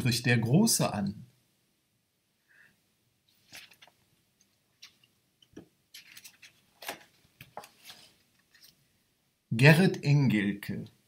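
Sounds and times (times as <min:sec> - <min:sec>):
hands rustling: 0:03.3 - 0:08.8.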